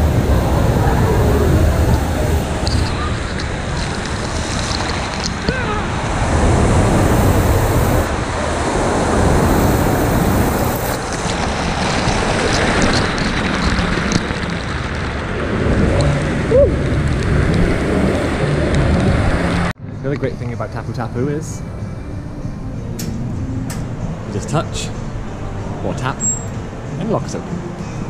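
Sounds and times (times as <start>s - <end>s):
waterfall pouring and splashing: 0.0s - 18.4s.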